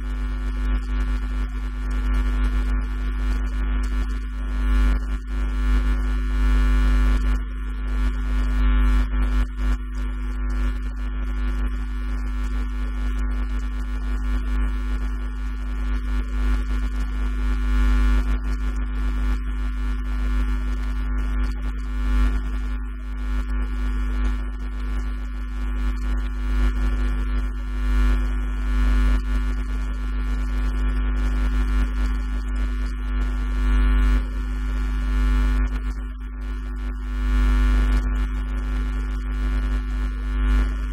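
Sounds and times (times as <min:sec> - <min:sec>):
electrical mains hum: 0:00.0 - 0:09.6, 0:20.7 - 0:40.9.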